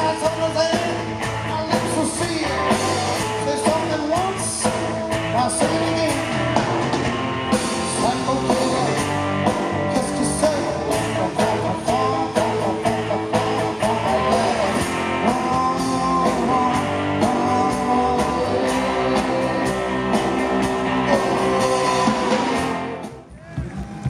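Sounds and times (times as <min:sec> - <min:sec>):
lead singer singing: 0:00.0 - 0:06.4, 0:07.7 - 0:23.6
electric guitars: 0:00.0 - 0:23.3
drums: 0:00.0 - 0:24.0.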